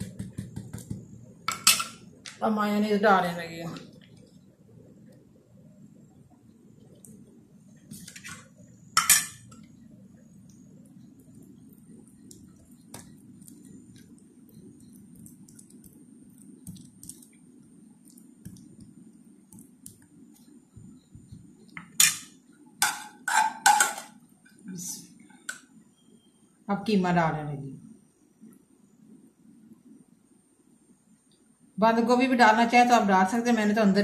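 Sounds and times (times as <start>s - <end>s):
spoon clinking on a plate: 9.0s - 9.6s, 21.8s - 24.1s.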